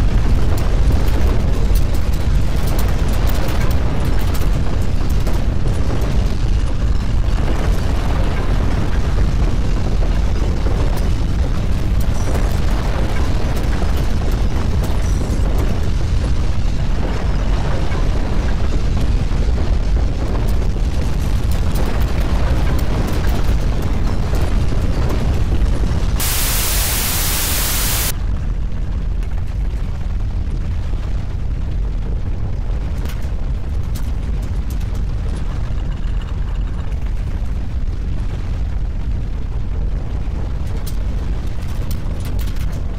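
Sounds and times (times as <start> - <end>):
deep earthquake rumble: 0.0 - 42.9
steady hiss: 26.2 - 28.1.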